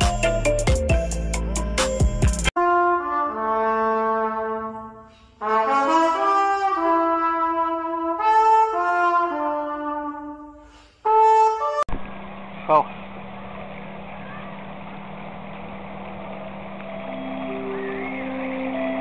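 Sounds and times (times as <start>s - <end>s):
trumpet playing into a tube: 2.6s - 11.9s.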